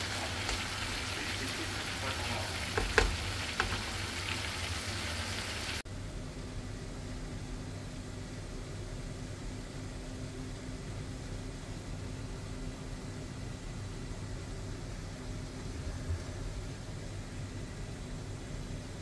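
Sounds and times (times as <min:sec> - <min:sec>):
food sizzling in a pan: 0:00.0 - 0:05.8
steady low hum: 0:05.8 - 0:19.0.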